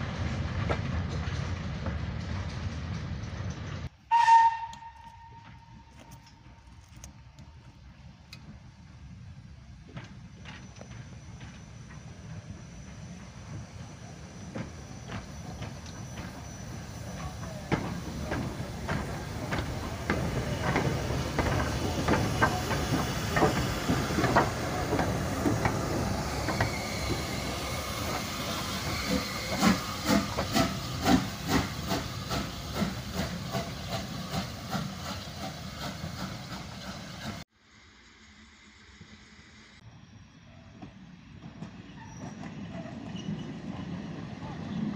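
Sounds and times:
steam hissing: 0:10.2 - 0:39.8
locomotive wheels knocking and clanking: 0:14.5 - 0:37.4.

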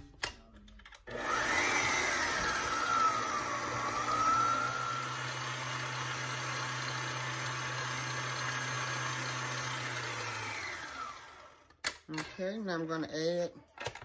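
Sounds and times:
electric mixer running: 0:01.1 - 0:11.8.

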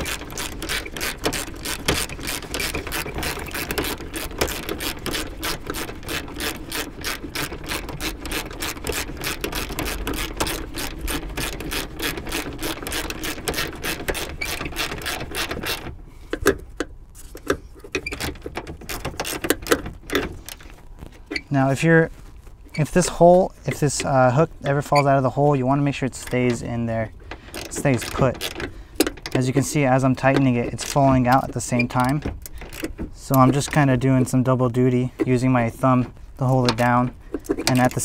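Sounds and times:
ratchet wrench clicking: 0:00.0 - 0:15.8.

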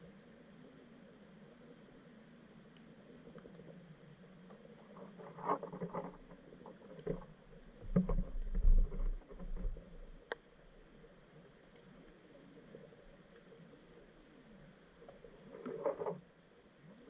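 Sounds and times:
muffled knocks and clicks: 0:07.0 - 0:10.0.

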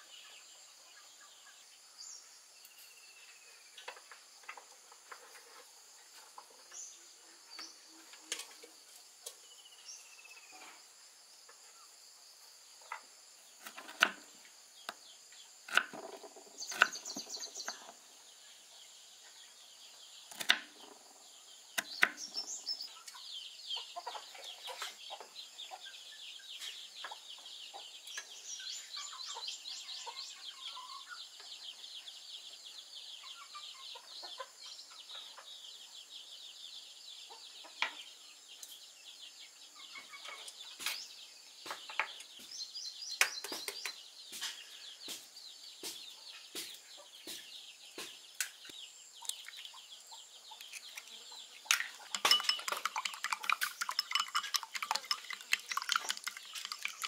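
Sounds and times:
chickens clucking: 0:03.8 - 0:09.4, 0:22.8 - 0:31.6, 0:33.2 - 0:35.6, 0:39.8 - 0:41.0, 0:44.3 - 0:57.0
high-pitched chirping: 0:50.5 - 0:57.0.

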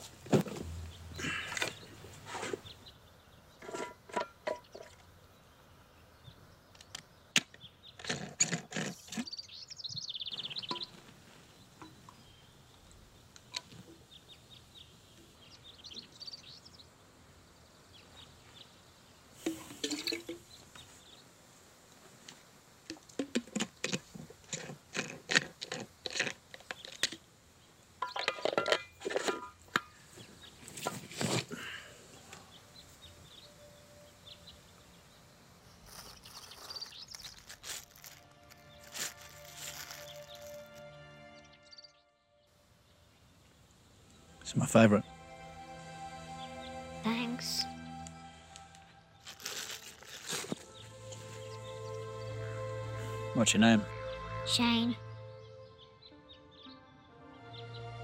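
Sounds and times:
birds chirping: 0:00.0 - 0:03.8, 0:08.9 - 0:21.4, 0:27.6 - 0:58.0
rustling and clicking of handling: 0:35.7 - 0:40.8, 0:49.2 - 0:50.7.

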